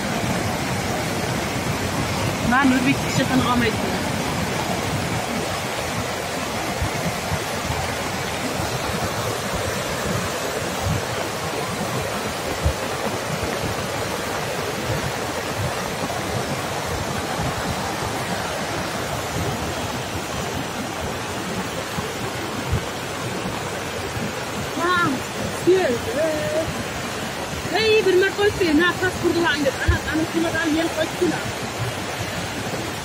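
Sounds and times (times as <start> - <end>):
river water rushing: 0.0 - 33.0.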